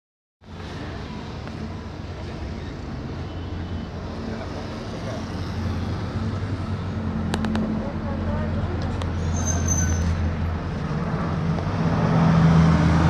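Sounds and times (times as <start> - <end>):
aircraft drone overhead: 10.4 - 13.0.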